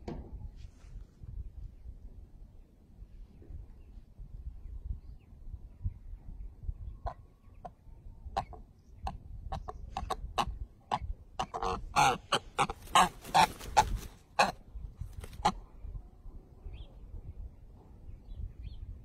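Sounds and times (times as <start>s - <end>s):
loud fowl calls: 9.9s - 14.6s.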